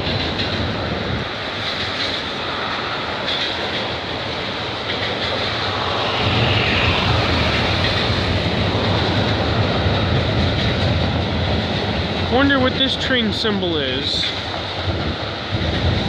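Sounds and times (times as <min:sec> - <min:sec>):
road traffic passing: 0:00.0 - 0:16.0
train cars rumbling on bridge: 0:00.0 - 0:16.0.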